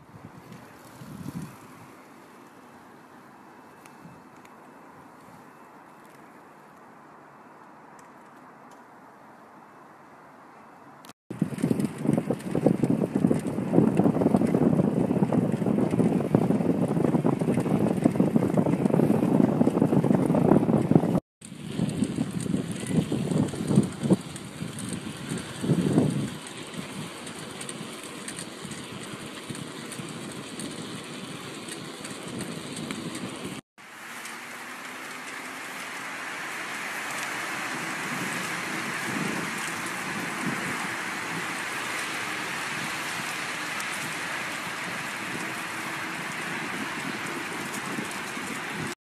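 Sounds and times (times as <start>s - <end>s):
wind buffeting microphone: 0.0s - 2.1s, 11.3s - 33.6s, 35.6s - 49.0s
rain falling on leaves: 21.4s - 49.0s.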